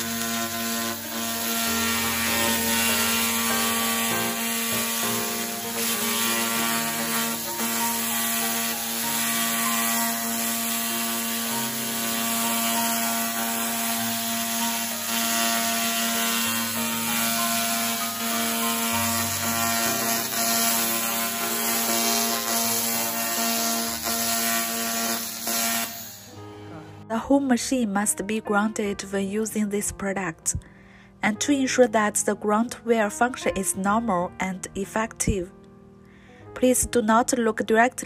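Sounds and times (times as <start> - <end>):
laser cleaning hiss and crackle: 0.0 - 26.3.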